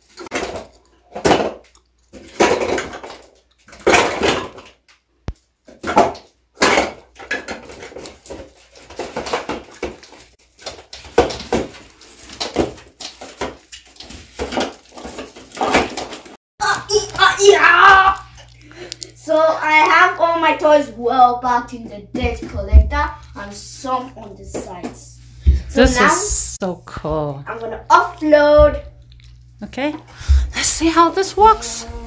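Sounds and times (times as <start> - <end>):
plastic toy blocks clattering: 0.0 - 4.9, 5.7 - 17.3.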